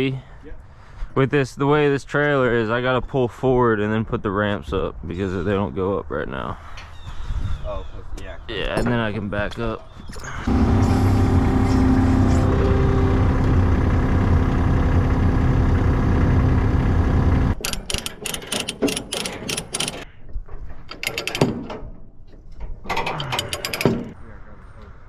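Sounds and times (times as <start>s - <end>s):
track loader engine running: 10.5s - 20.0s
ratchet chain binder clicking: 17.6s - 20.1s, 23.2s - 24.2s.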